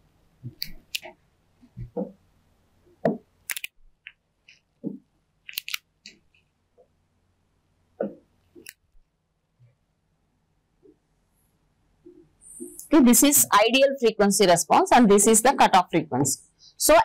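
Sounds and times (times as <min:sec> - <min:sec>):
stylus tapping whiteboard screen: 0:03.0 - 0:03.3, 0:04.0 - 0:05.1.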